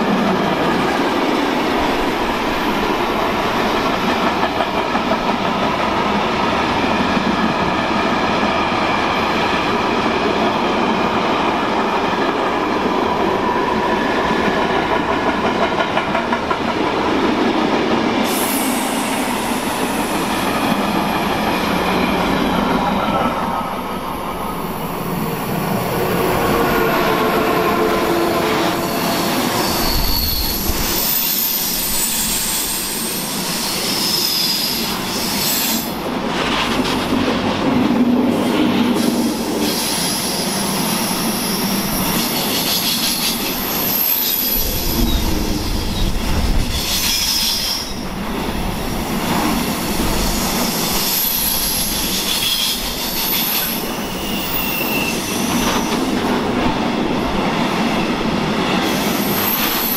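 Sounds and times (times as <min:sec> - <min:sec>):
train wheels rumbling on rails: 0:00.0 - 0:59.9
high wheel squealing: 0:28.6 - 0:35.8.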